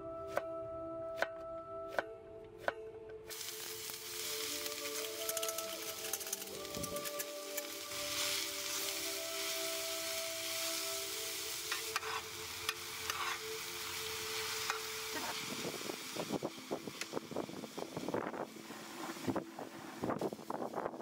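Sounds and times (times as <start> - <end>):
vegetables sizzling in a pan: 3.3 - 21.0
metal spoon scraping a pan: 11.7 - 13.5.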